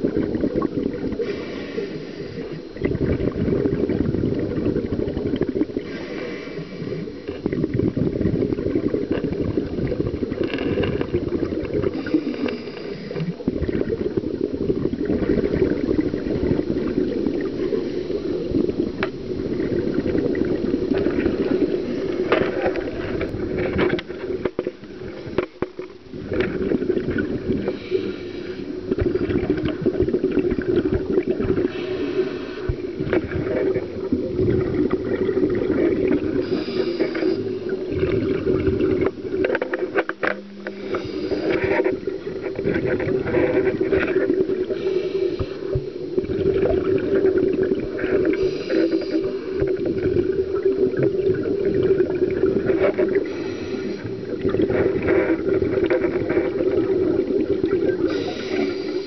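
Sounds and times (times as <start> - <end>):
bubbling rumble: 0.0 - 59.0
regulator breath hiss: 1.2 - 2.6, 5.8 - 7.3, 11.9 - 13.4, 27.6 - 28.8, 31.7 - 32.9, 36.4 - 37.8, 40.6 - 41.8, 44.7 - 45.8, 48.3 - 49.7, 53.2 - 54.3, 58.0 - 59.0.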